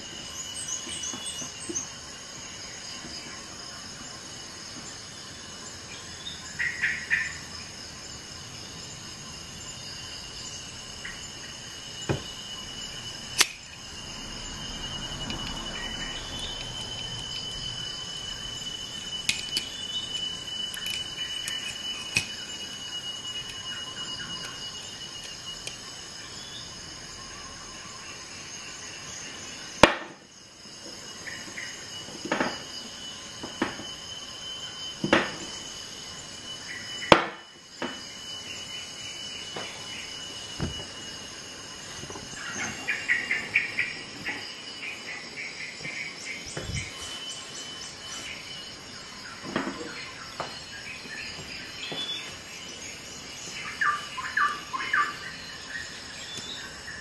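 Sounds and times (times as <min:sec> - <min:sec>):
cork rubbing and squeaking: 0:18.9 - 0:22.4
metal tool clicking against bottle: 0:19.0 - 0:19.7, 0:20.7 - 0:22.4.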